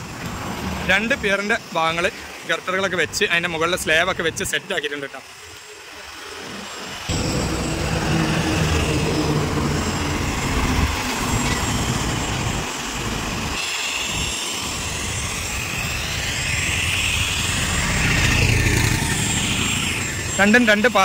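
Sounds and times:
road traffic roar: 0:00.0 - 0:04.0, 0:05.2 - 0:21.0
vehicle passing by: 0:07.1 - 0:13.2, 0:17.4 - 0:20.1.

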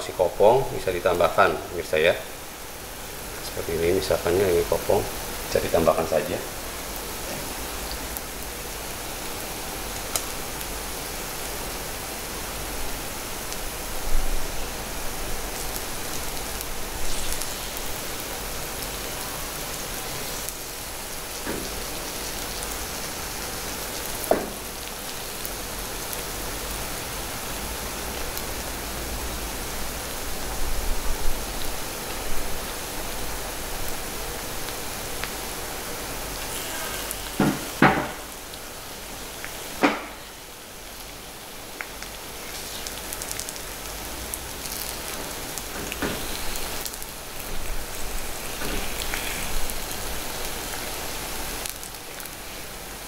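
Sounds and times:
batter frying in pan: 0:00.0 - 0:53.0
knocks and taps on pan: 0:37.4 - 0:38.2.

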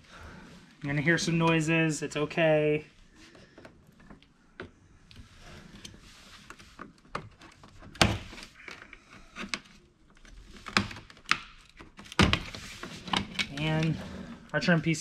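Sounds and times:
plastic scraping and creaking: 0:05.1 - 0:14.8.

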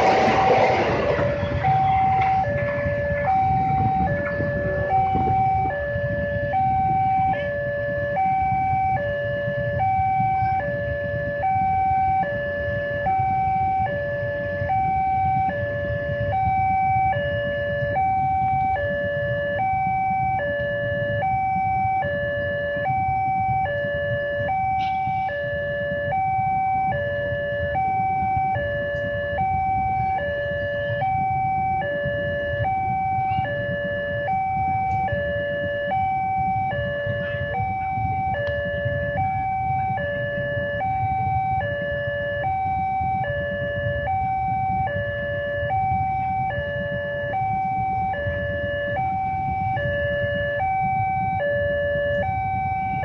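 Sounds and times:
low rumble: 0:00.0 - 0:07.3
level crossing alarm tones: 0:00.0 - 0:53.0.

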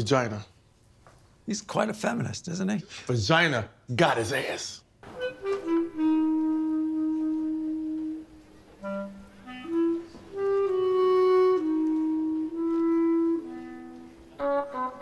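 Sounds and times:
woodwind melody: 0:05.0 - 0:15.0.

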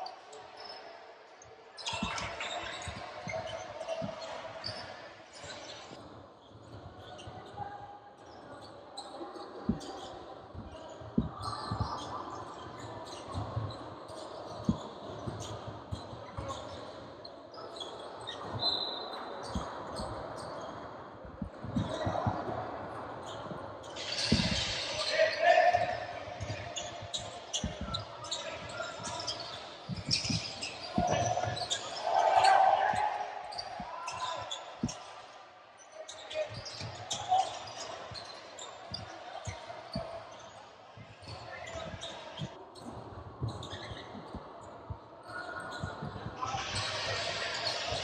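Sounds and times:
voices of players and spectators: 0:00.0 - 0:48.0.

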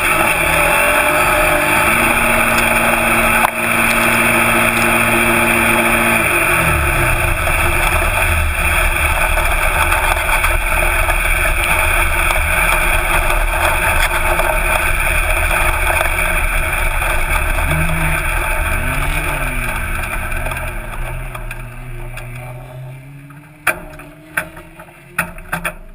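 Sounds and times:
buggy engine running: 0:00.0 - 0:25.9.

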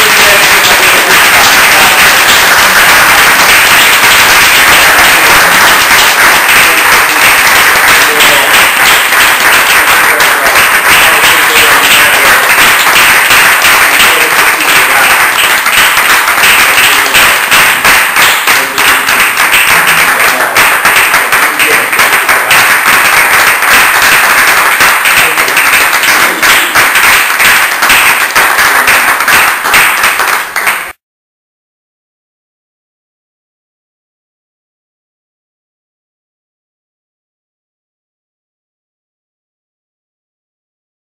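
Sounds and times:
audience applauding: 0:00.0 - 0:31.0.

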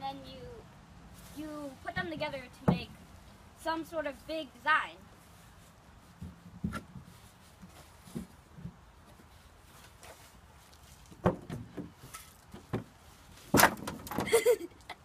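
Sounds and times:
wood knocks and scuffs: 0:06.1 - 0:14.3.

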